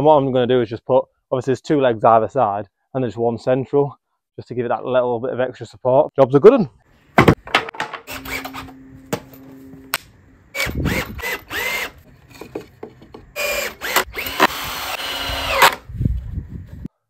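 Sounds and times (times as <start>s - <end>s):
cordless drill whining: 8.1s - 9.9s, 10.5s - 12.4s, 13.3s - 15.9s.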